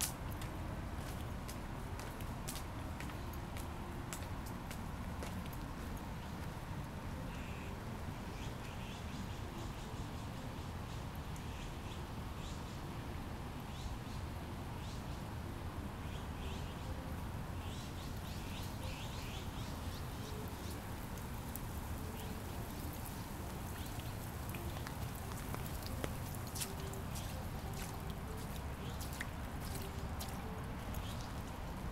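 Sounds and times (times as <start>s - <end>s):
birds chirping: 17.6s - 31.9s.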